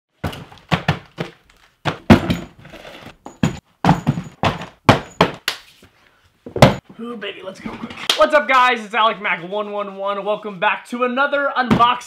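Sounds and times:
boxes thudding on wooden table: 0:00.2 - 0:02.6, 0:03.2 - 0:05.4, 0:06.5 - 0:06.8.

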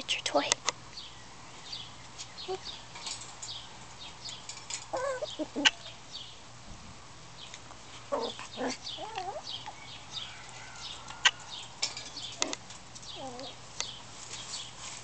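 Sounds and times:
puppies yipping and whining: 0:04.9 - 0:05.8, 0:08.1 - 0:11.5, 0:12.3 - 0:13.6.

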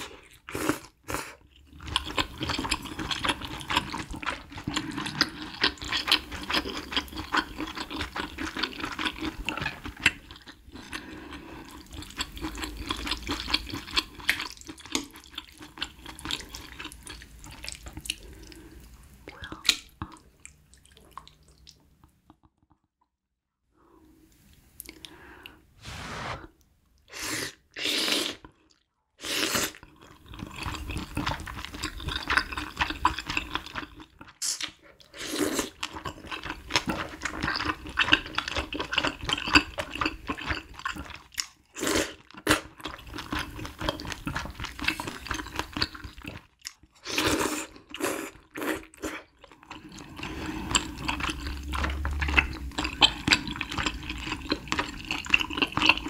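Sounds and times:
wet slurping: 0:25.8 - 0:28.5, 0:47.2 - 0:56.0
wet chewing: 0:47.8 - 0:56.0.

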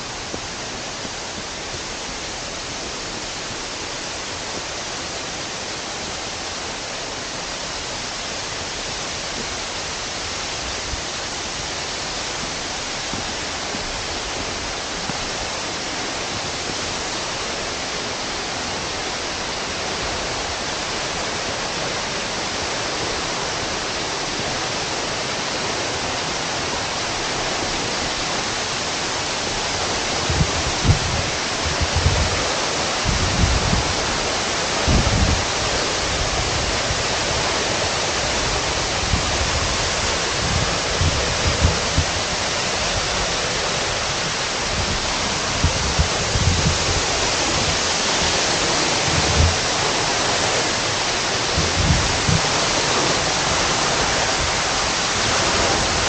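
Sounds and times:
waterfall rushing: 0:00.0 - 0:56.0.

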